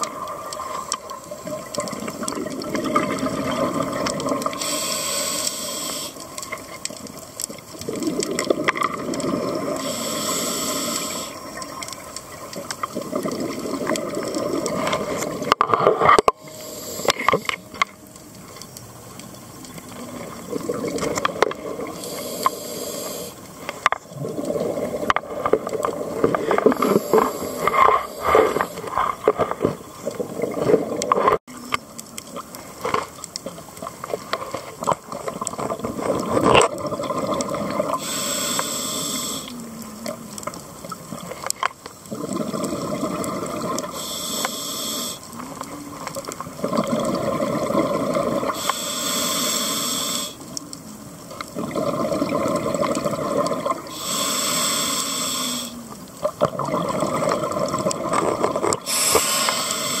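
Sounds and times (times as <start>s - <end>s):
exhaled bubbles rushing: 0.0s - 4.6s, 7.8s - 9.9s, 12.4s - 16.2s, 19.9s - 22.0s, 24.1s - 26.8s, 35.2s - 38.0s, 42.1s - 43.9s, 46.4s - 48.6s, 51.5s - 53.9s, 56.3s - 58.9s
regulator hissing on inhale: 4.4s - 6.6s, 9.5s - 11.8s, 16.4s - 18.0s, 21.2s - 23.8s, 26.1s - 29.0s, 37.9s - 39.8s, 43.8s - 45.6s, 48.4s - 50.7s, 53.8s - 56.1s, 58.8s - 60.0s.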